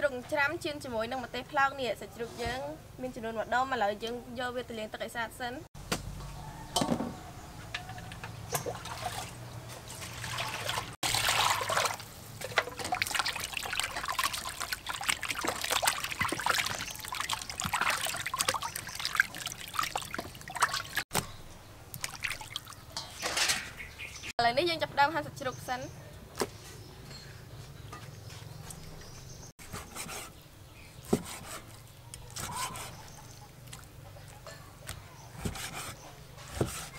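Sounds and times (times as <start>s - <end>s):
water splashing and trickling: 8.4s - 24.3s, 28.6s - 29.5s, 31.1s - 34.6s.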